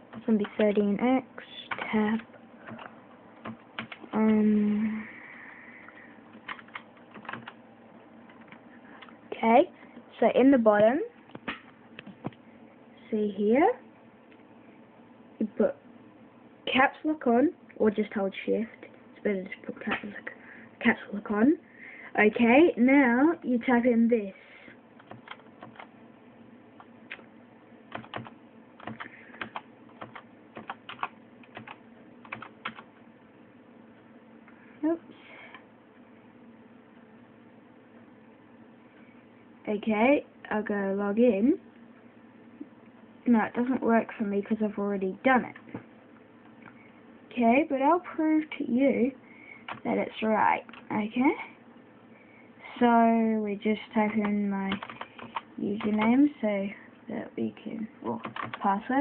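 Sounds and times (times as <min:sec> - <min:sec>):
keyboard keys clicking: 0:01.7 - 0:04.4, 0:06.3 - 0:07.6, 0:25.0 - 0:25.9, 0:27.9 - 0:32.9, 0:54.1 - 0:56.1, 0:58.2 - 0:58.6
person humming: 0:04.2 - 0:05.2.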